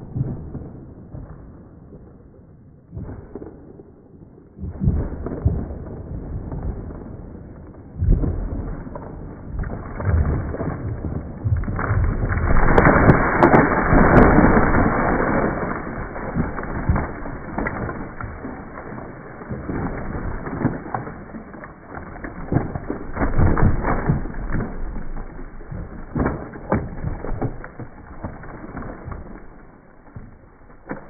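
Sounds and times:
wood snapping and cracking: 0:06.5 - 0:31.0
tree trunk crashing down: 0:07.9 - 0:31.0.

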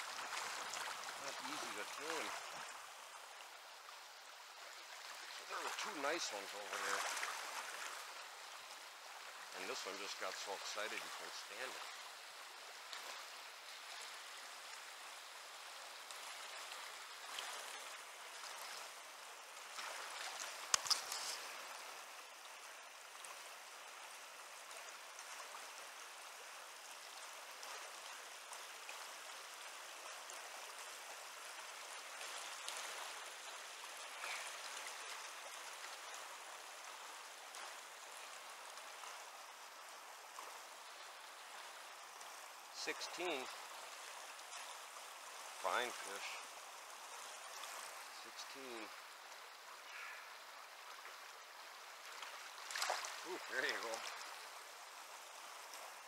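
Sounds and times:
river rushing: 0:00.0 - 0:56.0.

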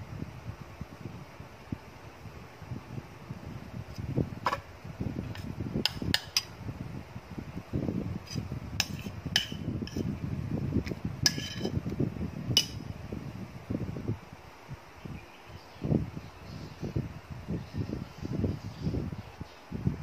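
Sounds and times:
spoon clinking against dishes: 0:08.8 - 0:09.7, 0:12.6 - 0:12.8.

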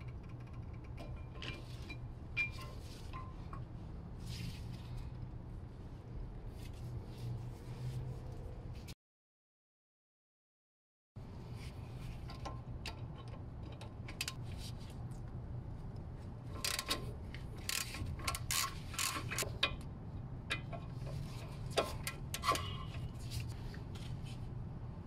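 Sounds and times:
steady low hum: 0:00.0 - 0:09.0
ratchet wrench clicking: 0:16.6 - 0:17.0, 0:17.6 - 0:19.4.

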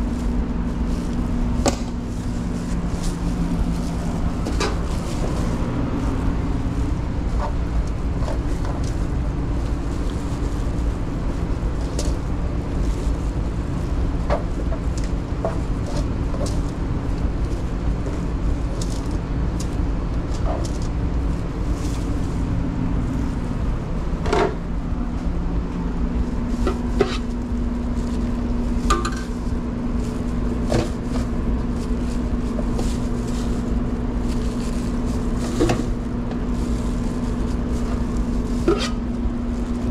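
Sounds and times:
low hum of kitchen equipment: 0:00.0 - 0:39.9
metal utensils clinking on pans: 0:28.9 - 0:29.3.

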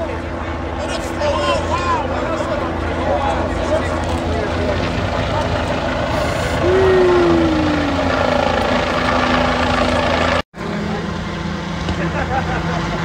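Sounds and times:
car engines idling: 0:00.0 - 0:13.0
helicopter rotor drone: 0:00.0 - 0:13.0
whine sliding down in pitch: 0:06.6 - 0:08.9.

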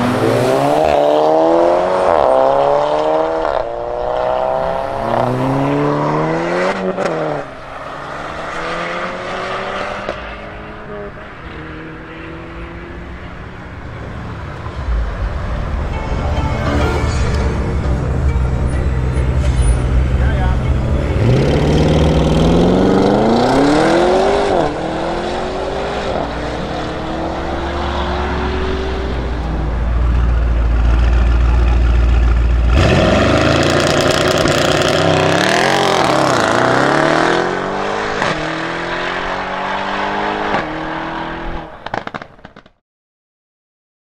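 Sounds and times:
second car accelerating with upshifts: 0:00.0 - 0:14.9, 0:21.0 - 0:42.3
car engine accelerating with upshifts: 0:00.0 - 0:15.8, 0:16.7 - 0:42.3.

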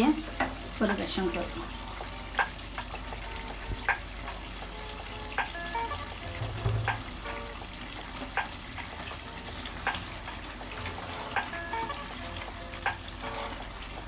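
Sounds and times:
curry sizzling: 0:00.0 - 0:14.0.

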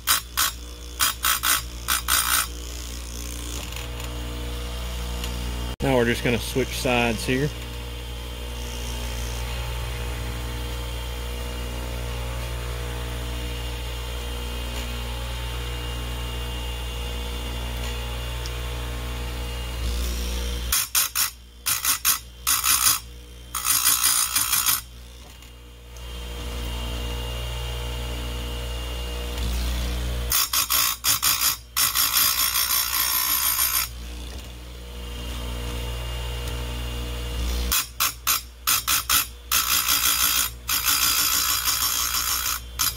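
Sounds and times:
grinding wheel on saw chain: 0:00.0 - 0:03.9, 0:20.6 - 0:25.5, 0:30.3 - 0:34.5, 0:37.7 - 0:42.9
electric motor humming: 0:00.0 - 0:42.9.

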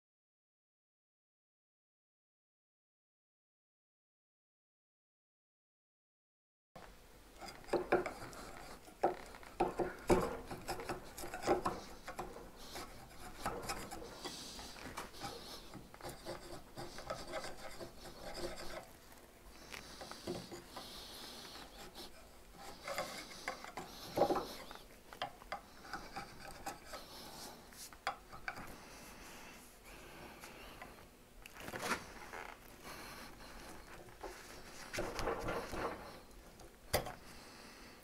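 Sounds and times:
hand tool rasping on wood: 0:07.4 - 0:19.0, 0:19.6 - 0:28.8.

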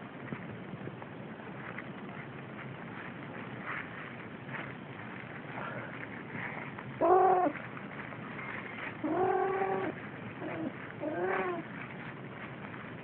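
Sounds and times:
kittens meowing: 0:07.0 - 0:07.6, 0:08.4 - 0:11.7.

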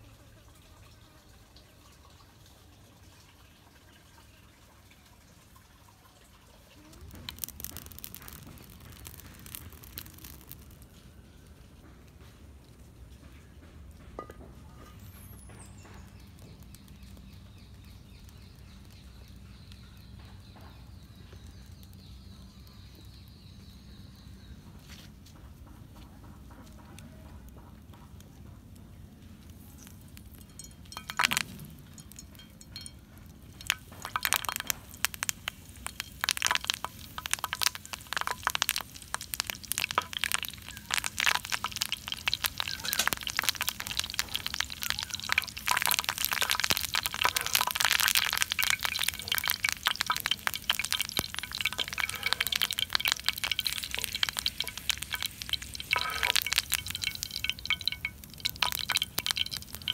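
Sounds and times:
hot oil crackling and spitting: 0:06.5 - 0:11.8, 0:13.8 - 0:59.9
sharp crack: 0:07.0 - 0:11.0.

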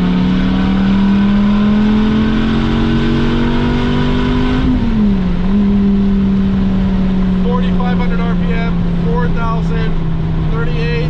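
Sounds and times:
car engine at speed from cabin: 0:00.0 - 0:11.0
exhaust rush: 0:00.0 - 0:11.0.

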